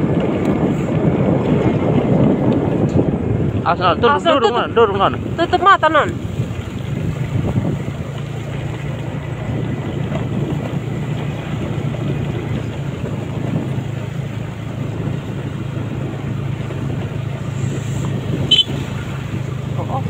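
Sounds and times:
vehicle engine running: 0:00.0 - 0:20.0
wind on microphone: 0:00.0 - 0:20.0.

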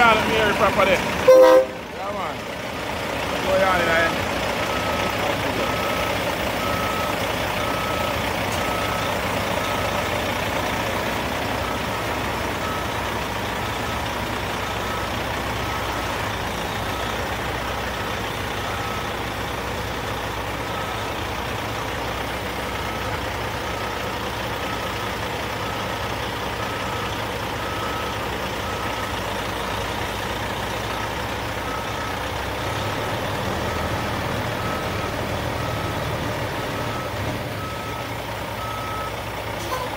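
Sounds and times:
diesel engine running: 0:00.0 - 0:39.9
backup alarm beeping: 0:04.7 - 0:10.0.

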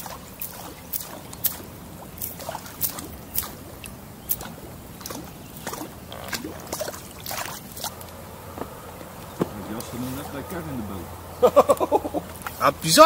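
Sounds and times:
lure splashing across water: 0:00.0 - 0:08.3.

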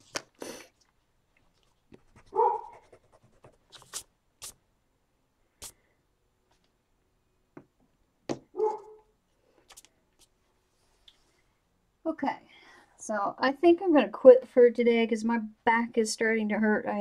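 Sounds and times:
hand brushing across paper: 0:01.6 - 0:04.6
scratchy eraser rubbing: 0:01.9 - 0:04.6.

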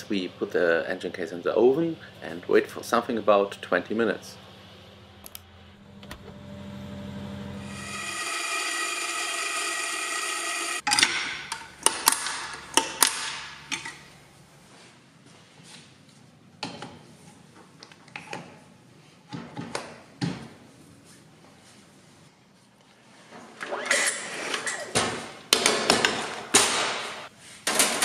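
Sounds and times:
coffee grinder motor whining: 0:06.0 - 0:10.8.

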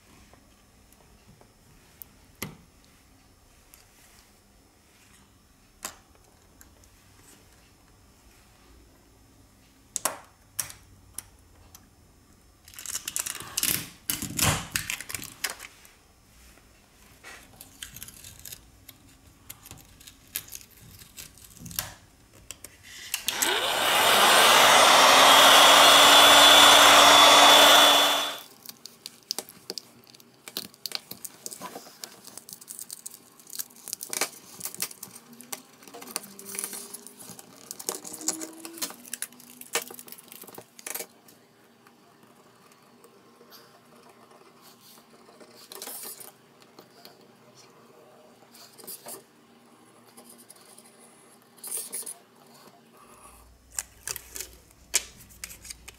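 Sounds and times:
heat gun fan whine: 0:23.1 - 0:28.5.

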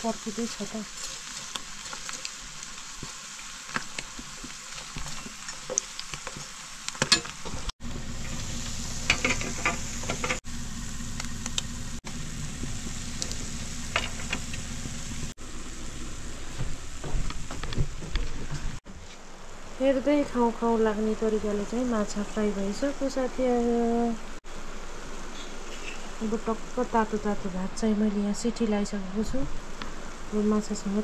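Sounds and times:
fish sizzling in hot oil: 0:00.0 - 0:15.6.

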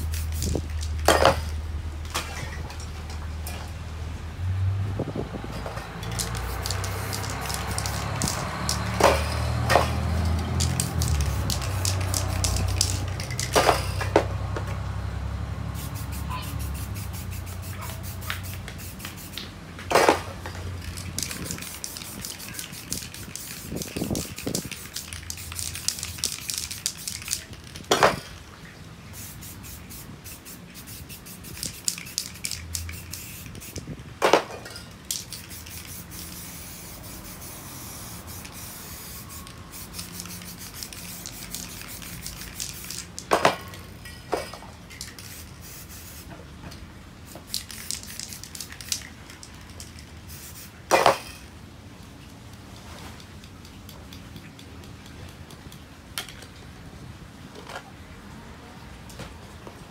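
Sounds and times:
spray paint can hissing: 0:00.0 - 0:01.6, 0:06.0 - 0:14.1, 0:15.7 - 0:20.2, 0:20.8 - 0:28.2, 0:29.2 - 0:34.0, 0:35.1 - 0:43.3, 0:44.9 - 0:46.3, 0:47.2 - 0:51.4.

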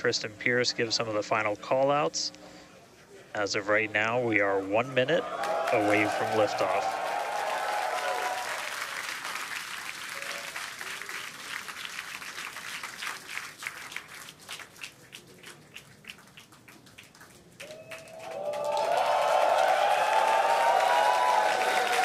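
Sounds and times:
crowd applause: 0:05.2 - 0:22.0.

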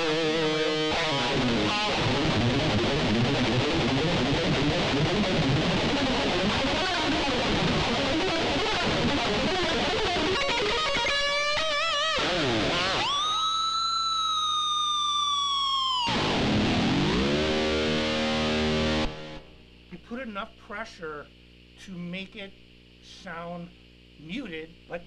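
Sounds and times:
electric guitar through amplifier: 0:00.0 - 0:20.0.

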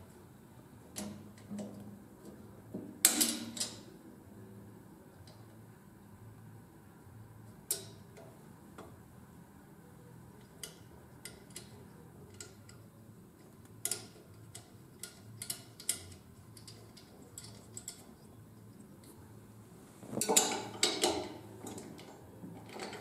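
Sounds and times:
low steady hum: 0:00.0 - 0:23.0
work light clicking and clacking: 0:10.4 - 0:18.3.

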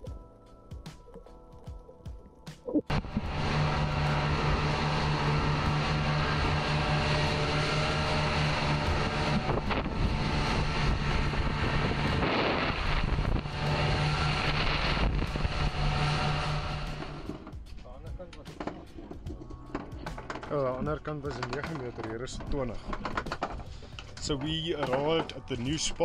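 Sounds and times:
motorboat engine humming: 0:00.0 - 0:26.0
water rushing along hull: 0:02.9 - 0:17.5
wind buffeting microphone: 0:08.6 - 0:16.9.

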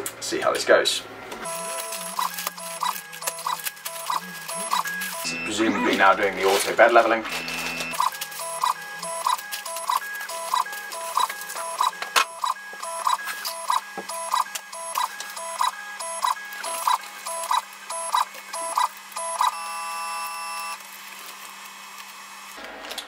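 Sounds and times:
stepper motors whining in bursts: 0:01.0 - 0:22.8.

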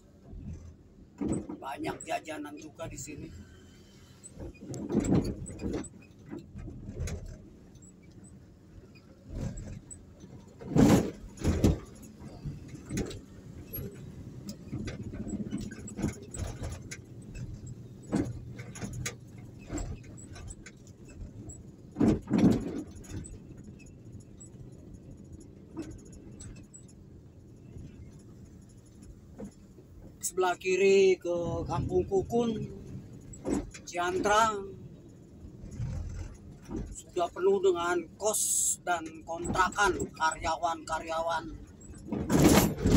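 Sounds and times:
vehicle road rumble: 0:00.0 - 0:42.9
sharp knocks and rattles: 0:04.3 - 0:30.2, 0:32.6 - 0:37.2, 0:41.6 - 0:42.9.

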